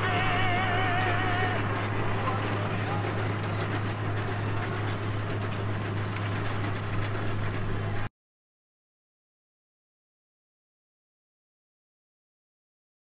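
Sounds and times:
tractor engine under load: 0.0s - 8.1s.

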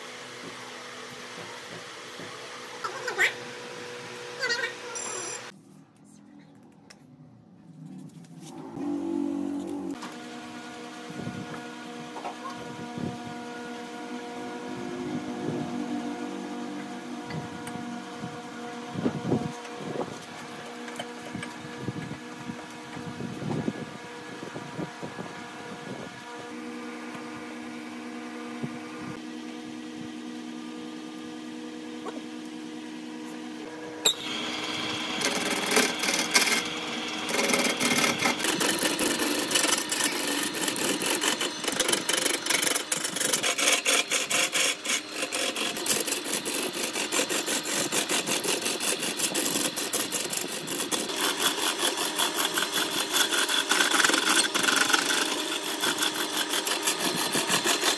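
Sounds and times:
wood lathe humming: 33.6s - 57.9s
sandpaper scratching spinning wood: 34.2s - 57.9s.

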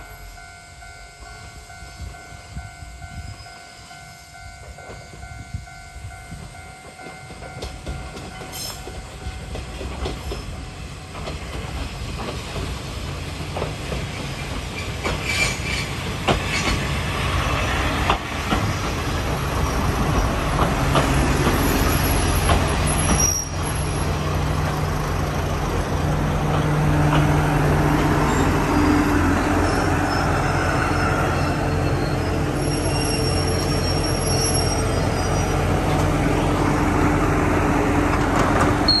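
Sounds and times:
train clicking over rail joints: 3.1s - 39.0s
wheel and brake squeals: 14.3s - 16.8s, 21.2s - 24.1s, 28.2s - 36.0s.

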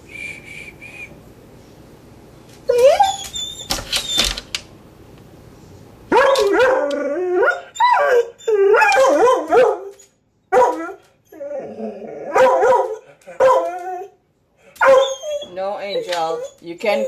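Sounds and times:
dog whining and howling: 2.7s - 4.2s, 6.1s - 14.2s, 14.8s - 17.0s.

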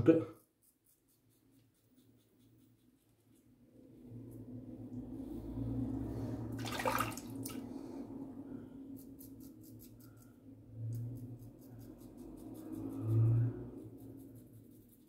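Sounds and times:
steady low hum: 0.0s - 15.0s
razor scratching stubble: 0.3s - 3.6s, 9.0s - 15.0s.

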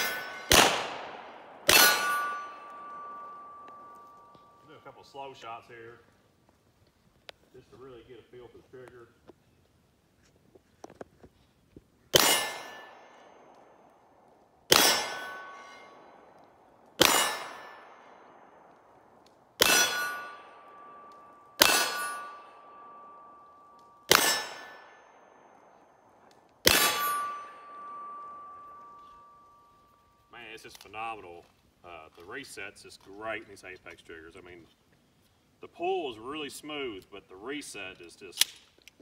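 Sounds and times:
pistol shots: 0.0s - 3.8s, 12.1s - 13.8s, 14.7s - 16.2s, 17.0s - 18.9s, 19.6s - 23.2s, 24.1s - 25.7s, 26.6s - 28.7s
steel target ringing: 0.0s - 4.9s, 12.2s - 13.8s, 14.7s - 16.4s, 17.0s - 18.8s, 19.6s - 30.3s.

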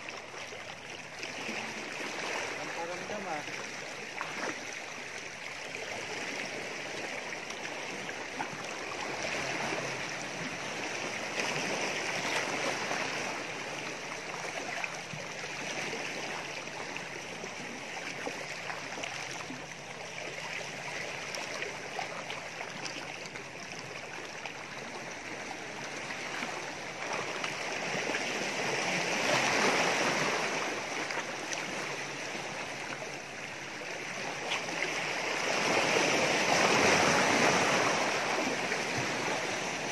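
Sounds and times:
waves splashing on rocks: 1.4s - 4.6s, 34.1s - 39.9s.

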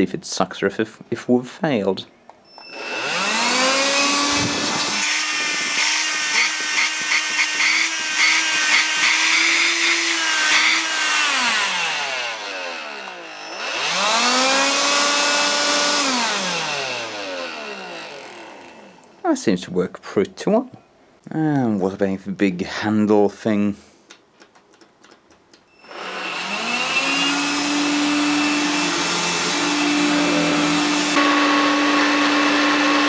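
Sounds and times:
vacuum motor whining with crackle: 2.6s - 19.2s, 25.8s - 33.0s.

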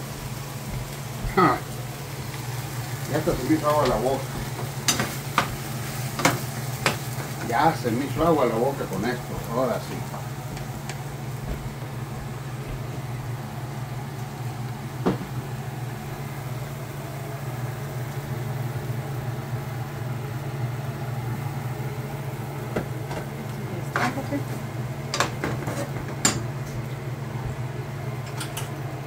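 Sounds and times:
kitchen appliance humming: 0.0s - 29.0s.

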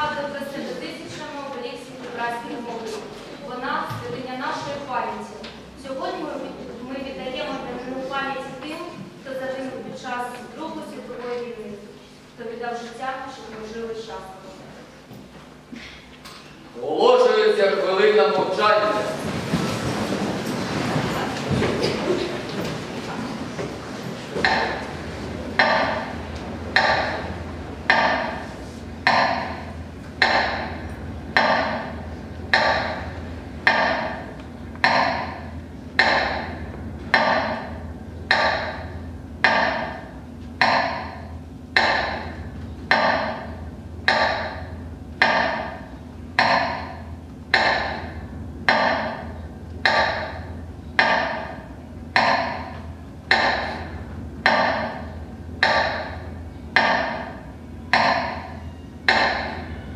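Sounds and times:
steady low hum: 0.0s - 59.9s
metronome beating slowly: 24.4s - 59.9s.

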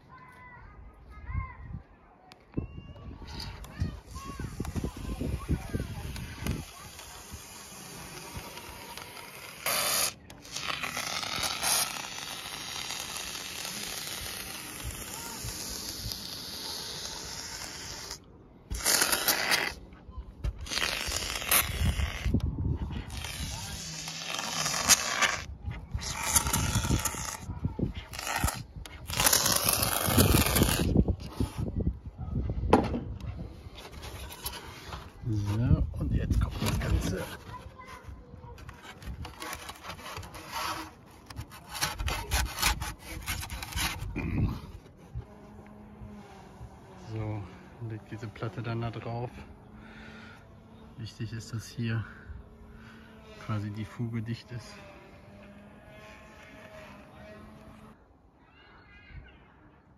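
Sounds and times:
foam gun hissing: 4.4s - 19.8s.

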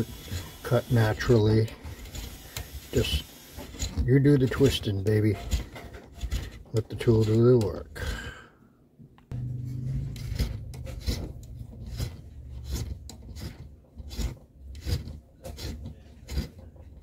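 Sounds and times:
reamer rasping wood: 0.0s - 7.8s, 9.7s - 17.0s
steady low hum: 9.2s - 13.7s.

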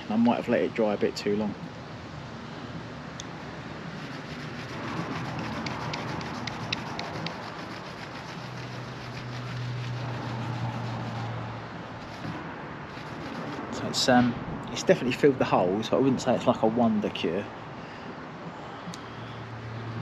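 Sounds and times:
cloth rubbing on car paint: 3.8s - 14.1s.

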